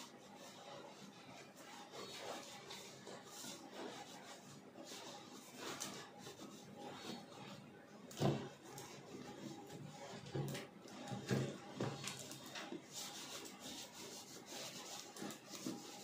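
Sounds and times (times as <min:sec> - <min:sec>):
rubbing strokes on leather: 0:00.0 - 0:07.6, 0:12.5 - 0:16.0.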